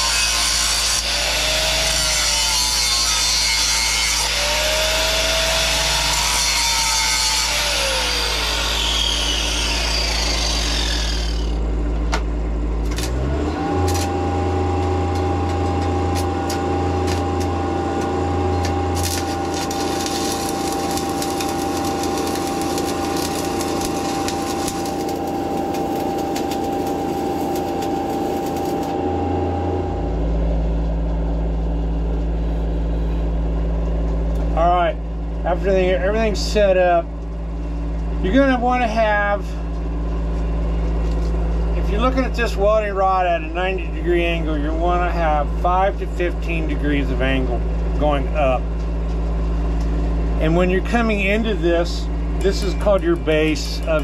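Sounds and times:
angle grinder whining: 0:00.0 - 0:11.8, 0:12.8 - 0:30.3
welding machine engine running: 0:00.0 - 0:54.0
sharp welding clicks: 0:12.8 - 0:13.2, 0:16.1 - 0:28.9.

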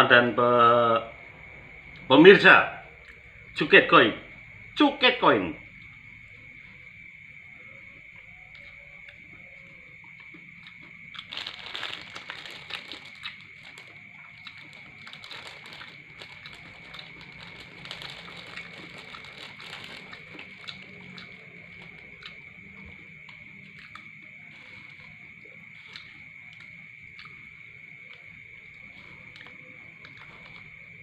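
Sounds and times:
crickets trilling: 0:00.0 - 0:31.0
paper crinkling: 0:11.2 - 0:22.2
spoon scraping paper wrapper: 0:14.7 - 0:20.6.

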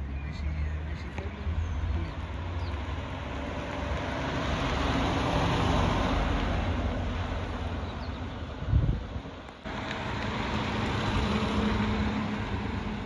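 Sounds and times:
car engine driving past: 0:01.5 - 0:08.4.

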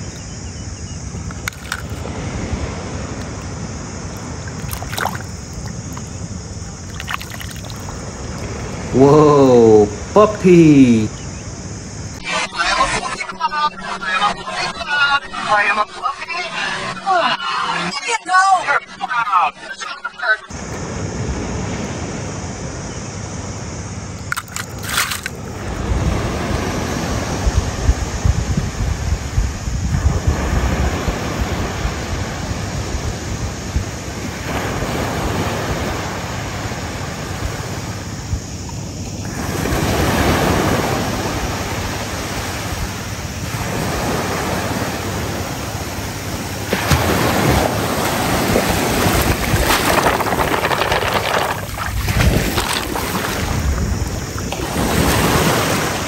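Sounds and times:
surf washing on beach: 0:01.1 - 0:11.1, 0:24.4 - 0:56.0
wind on microphone: 0:25.4 - 0:38.6, 0:39.2 - 0:56.0.

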